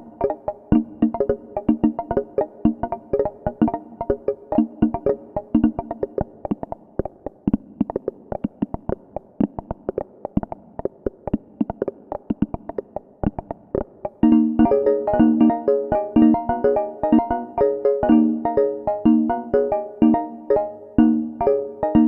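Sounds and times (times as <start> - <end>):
synthesizer held chords: 0.0 - 6.2
synthesizer plucky notes: 0.0 - 22.0.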